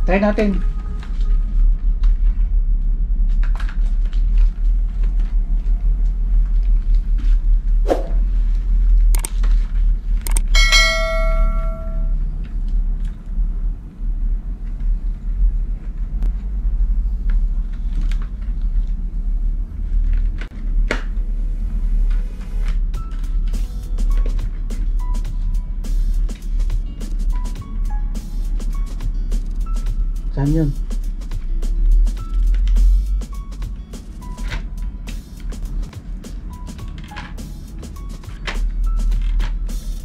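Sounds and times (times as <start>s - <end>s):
steady low hum: 0.0s - 40.0s
bell-like metallic ring: 10.5s - 12.2s.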